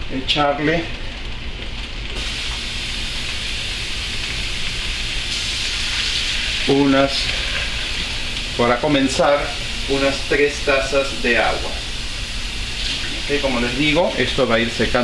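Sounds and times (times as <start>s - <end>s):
food sizzling in a pot: 1.4s - 15.0s.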